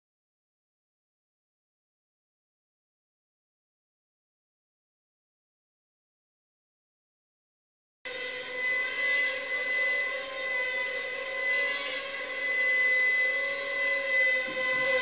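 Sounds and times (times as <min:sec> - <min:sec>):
drone propellers buzzing: 0:08.1 - 0:15.0
high whine: 0:08.1 - 0:15.0.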